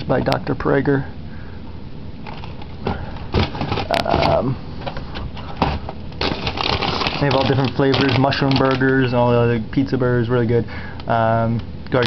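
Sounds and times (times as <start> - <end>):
frozen food packages rustling: 2.2 - 4.4, 5.3 - 9.3.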